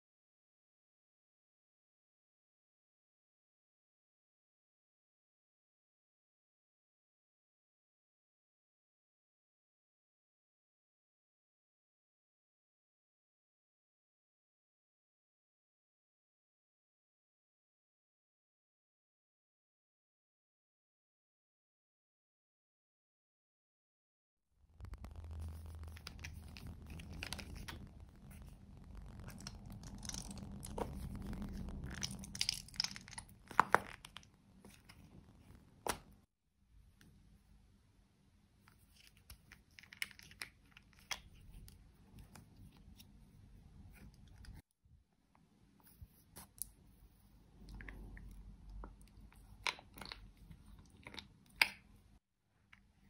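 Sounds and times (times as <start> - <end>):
sharp clicks and pops: 24.7 - 36.3
plastic crinkling: 24.8 - 36.2
gel squelching: 29.0 - 34.2.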